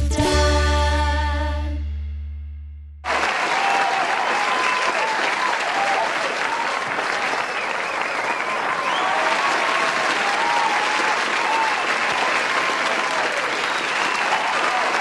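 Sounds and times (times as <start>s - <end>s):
audience applauding: 3.0s - 15.0s
high voices cheering: 3.1s - 15.0s.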